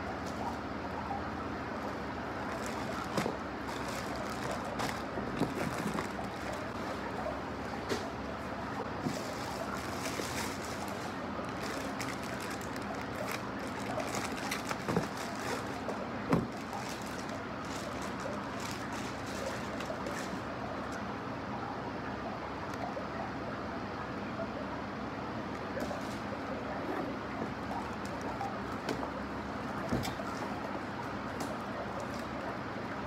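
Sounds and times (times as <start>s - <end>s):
low background hum: 0.0s - 33.0s
plastic packaging crinkling: 1.8s - 7.2s, 9.0s - 21.0s.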